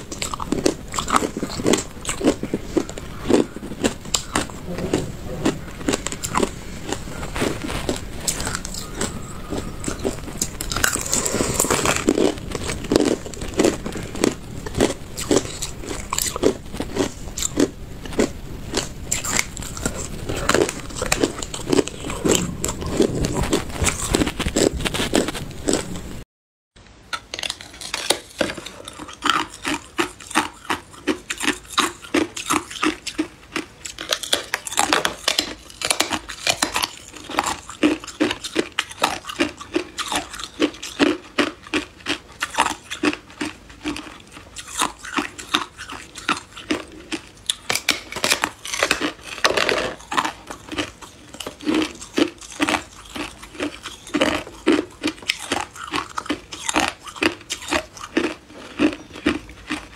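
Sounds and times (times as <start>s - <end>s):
teeth crunching ice: 0.0s - 26.1s, 27.1s - 59.9s.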